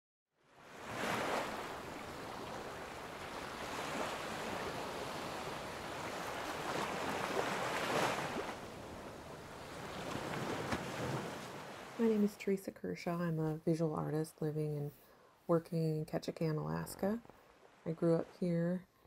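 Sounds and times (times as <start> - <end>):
water lapping: 0.7 - 12.4.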